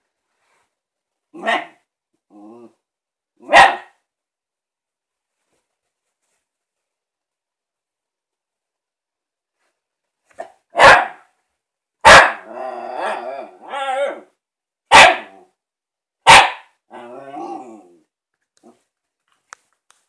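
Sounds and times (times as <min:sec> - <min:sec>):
dog barking: 0:01.4 - 0:01.8, 0:03.4 - 0:04.0, 0:10.4 - 0:11.3, 0:12.0 - 0:13.2, 0:14.9 - 0:15.5, 0:16.2 - 0:16.8
dog growling grumbles: 0:02.3 - 0:02.8, 0:12.5 - 0:14.2, 0:16.9 - 0:18.0.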